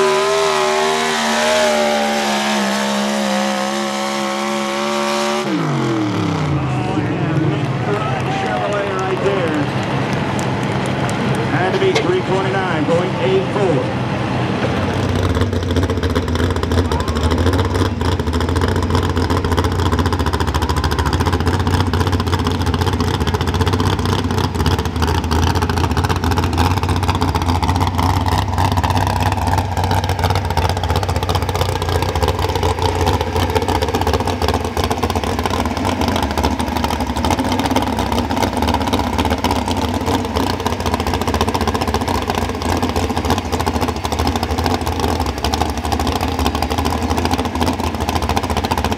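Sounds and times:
pulling truck engine at high revs: 0:00.0 - 0:48.9.

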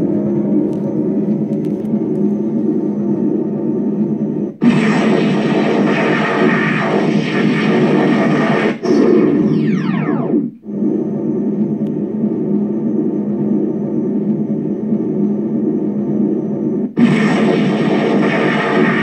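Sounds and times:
electronic idle hum: 0:00.0 - 0:19.0
whine falling in pitch: 0:00.0 - 0:19.0
loud hissing blast effect: 0:04.6 - 0:10.6, 0:17.0 - 0:19.0.

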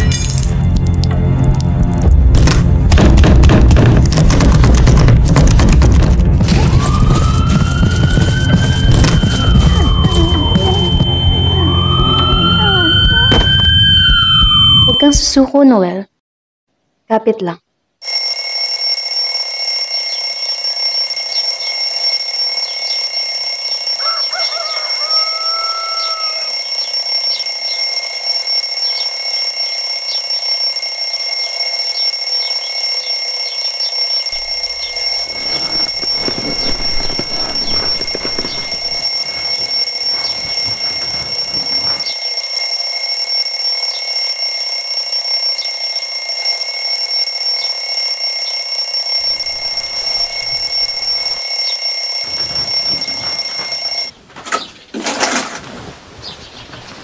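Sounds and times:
alarm clock ringing: 0:06.8 - 0:15.1, 0:18.0 - 0:54.1
clock ticking: 0:26.2 - 0:54.1.

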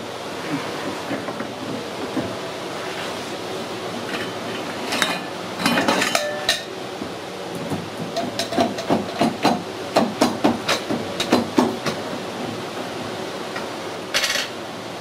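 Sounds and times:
workshop noise hiss: 0:00.0 - 0:15.0
metal housings clinking and ringing: 0:04.2 - 0:06.7.

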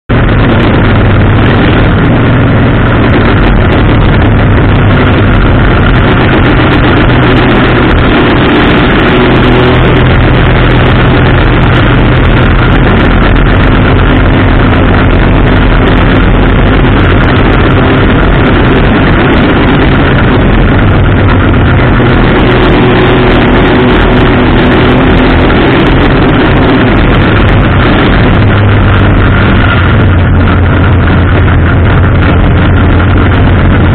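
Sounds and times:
race car engine drone: 0:00.0 - 0:33.9
rushing track noise: 0:00.1 - 0:33.9.

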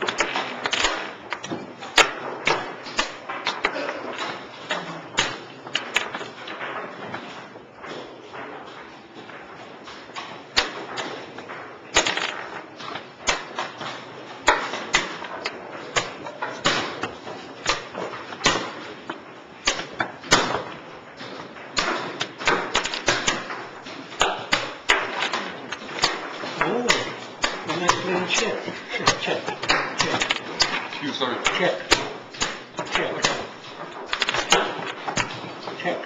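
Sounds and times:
chess pieces set on board: 0:12.0 - 0:18.9, 0:29.0 - 0:35.6.

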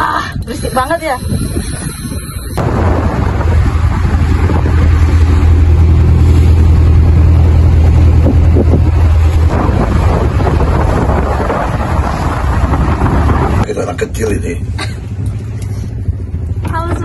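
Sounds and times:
wind on microphone: 0:00.0 - 0:13.7
boat engine droning: 0:00.0 - 0:17.0
water rushing past: 0:02.6 - 0:13.7.

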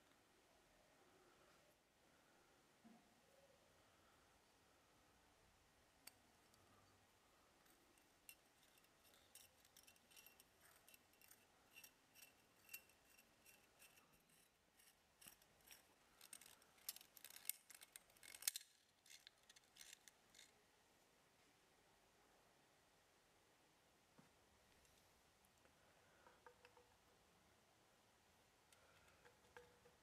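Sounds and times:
metallic clicks and scrapes: 0:07.6 - 0:20.6, 0:28.7 - 0:30.0.

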